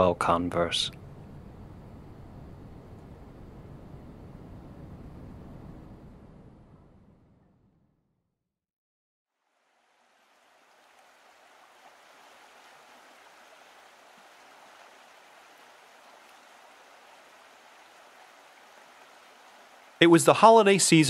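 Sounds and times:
river water rushing: 9.5 - 20.8.

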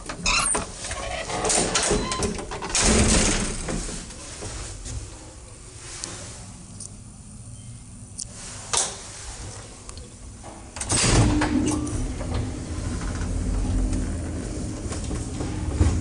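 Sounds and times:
lift rumbling: 9.3 - 16.0
lift drive hum: 9.6 - 16.0.

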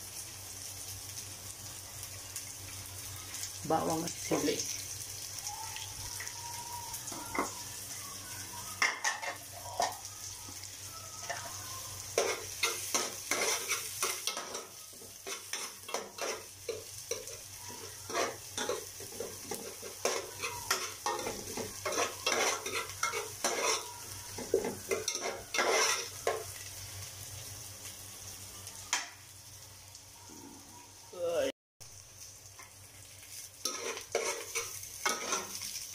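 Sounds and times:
food sizzling in hot oil: 0.0 - 35.9
spoon scraping and knocking a pot: 18.1 - 26.4.

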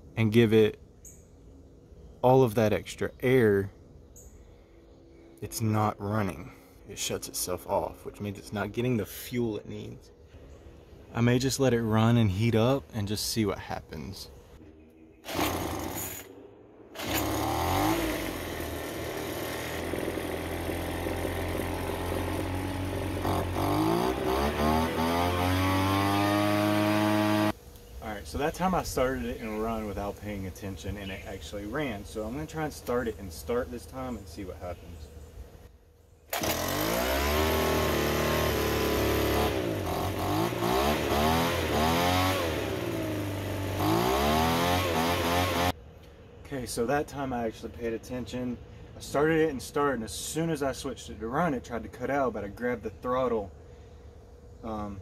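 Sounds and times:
leaf blower engine running: 15.2 - 16.3, 17.0 - 27.6, 36.3 - 45.8.

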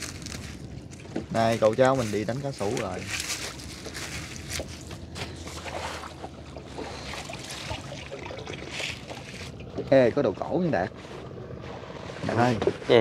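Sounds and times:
low steady hum: 0.0 - 13.0
water splashing and dripping: 5.5 - 9.8.

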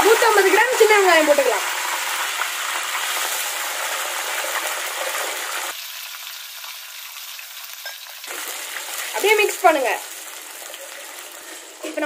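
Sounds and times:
hot oil sizzling in a pot: 0.0 - 12.0.

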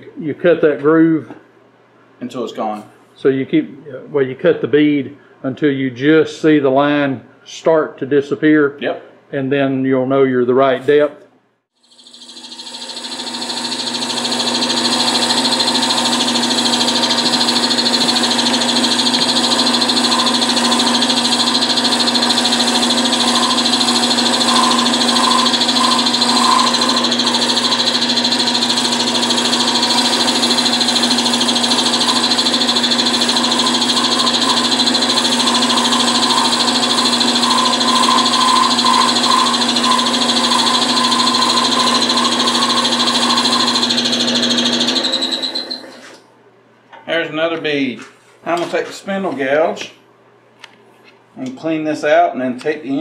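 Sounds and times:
wood lathe running: 11.9 - 46.1
chisel cutting wood: 12.0 - 46.1.

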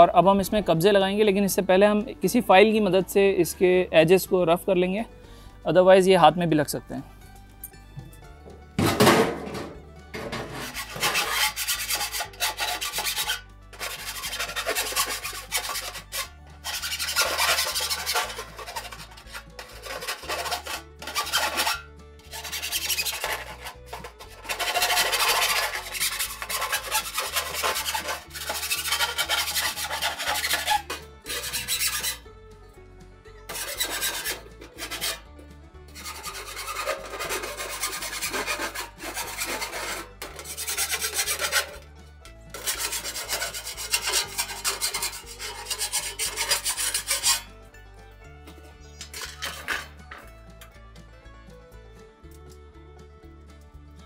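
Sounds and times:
file rasping on sheet metal: 8.8 - 32.3, 33.5 - 35.3, 35.9 - 41.9, 42.5 - 47.6, 48.6 - 50.3.

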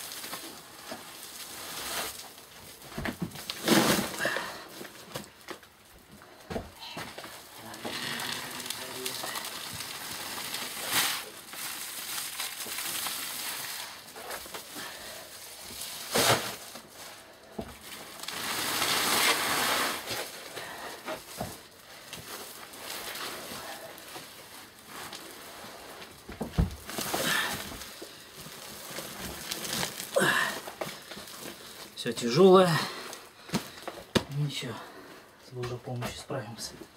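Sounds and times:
sack cloth rustling and scraping: 7.9 - 30.4.

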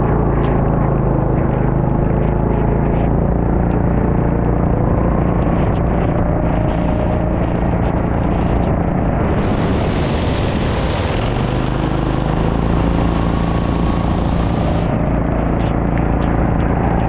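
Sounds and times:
go-kart engine running: 0.0 - 17.0
broad hiss: 9.4 - 14.8.

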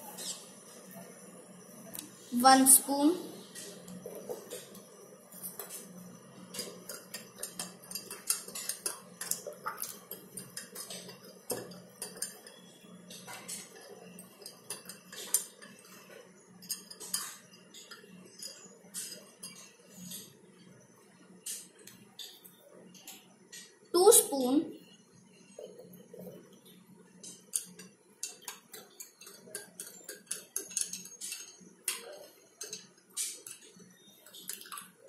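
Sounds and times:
plastic spoon stirring in glass: 6.5 - 20.3, 27.2 - 35.0.

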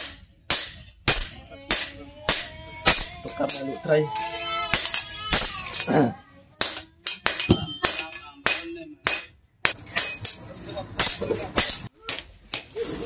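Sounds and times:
hammer striking metal blade: 0.0 - 5.9, 6.6 - 10.4.

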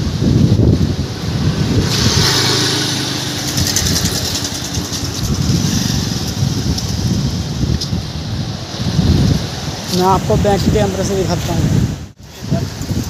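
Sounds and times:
motorcycle engine running: 0.0 - 9.5.

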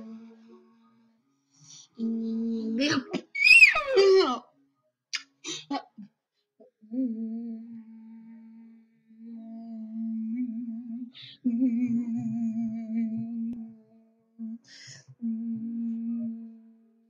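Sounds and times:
person humming a low note: 6.9 - 13.8, 15.2 - 16.8.

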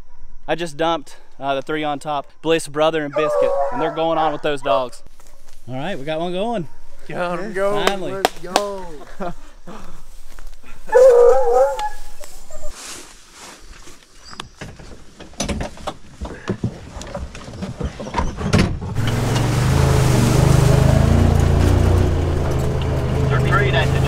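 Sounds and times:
utility vehicle engine running: 19.0 - 24.0.

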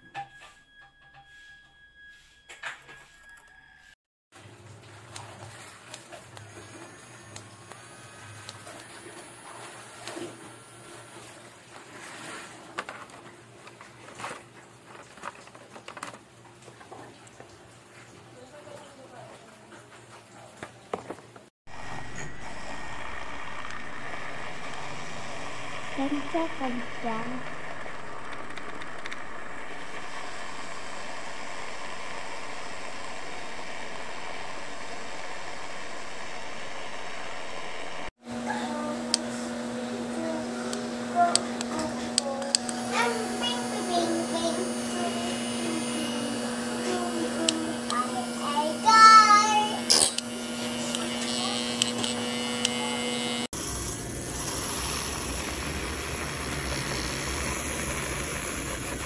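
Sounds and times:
milk frother motor whirring: 4.9 - 16.2, 21.7 - 59.0
plastic clicks taps and rustles: 14.9 - 16.2.

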